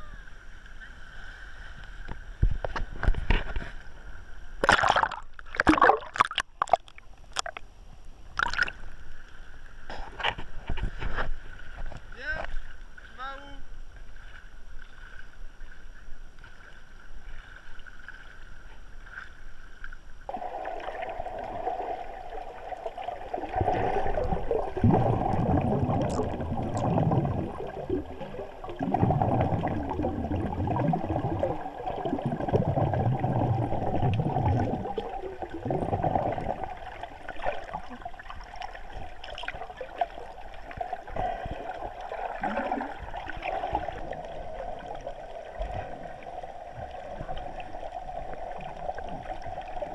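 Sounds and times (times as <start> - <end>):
water sloshing and gurgling: 0.2 - 49.9.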